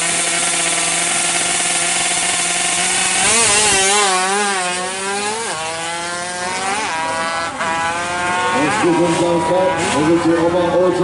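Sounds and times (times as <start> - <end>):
two-stroke motorcycle engine revving: 0.0 - 11.0.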